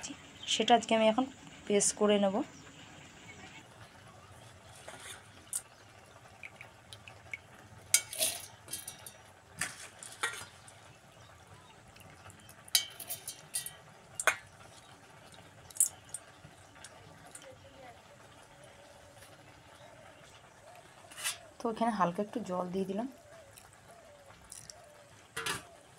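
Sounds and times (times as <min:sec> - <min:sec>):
wet rice clinking into steel jar: 0:07.9 - 0:10.6, 0:12.6 - 0:14.5, 0:15.7 - 0:16.2.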